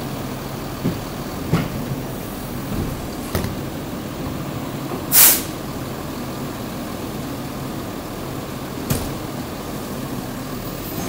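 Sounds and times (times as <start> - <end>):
diesel engine idling: 0.0 - 11.0
compressed air hiss: 5.1 - 5.6.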